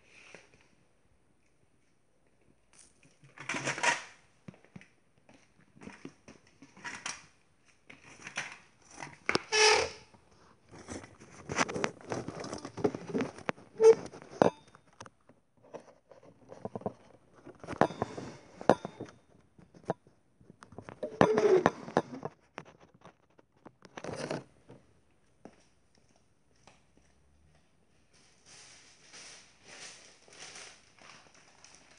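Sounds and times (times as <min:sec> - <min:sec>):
objects being handled: 0:02.6 - 0:24.9
rattan chair moving: 0:09.4 - 0:10.1, 0:20.9 - 0:22.4.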